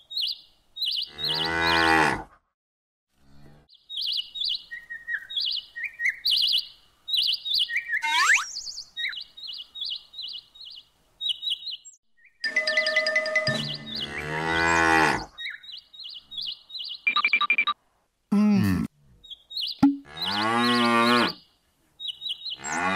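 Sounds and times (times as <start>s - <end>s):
small birds chirping: 0.0s - 1.7s, 3.7s - 12.5s, 13.5s - 17.7s, 19.1s - 22.9s
cow mooing: 1.1s - 2.3s, 13.9s - 15.3s, 20.0s - 21.4s.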